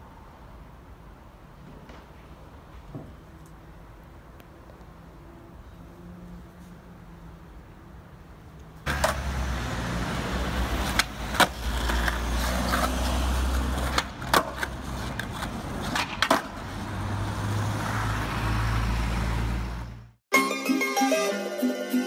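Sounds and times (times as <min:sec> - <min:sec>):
skateboard wheels rolling on pavement: 0:01.0 - 0:05.0, 0:08.8 - 0:20.1
skateboard clacking on ground: 0:08.9 - 0:09.3, 0:10.8 - 0:16.7.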